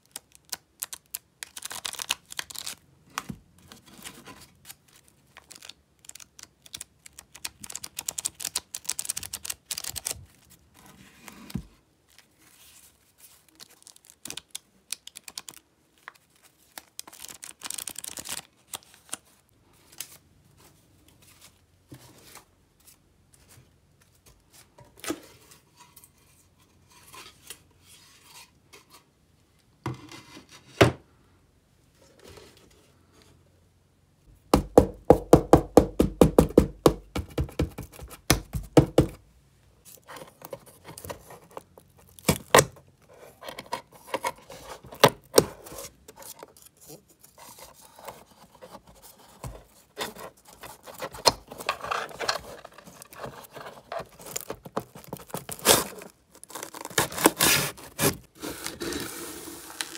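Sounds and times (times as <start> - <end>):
hand tool scraping paper on wood: 55.3 - 59.9.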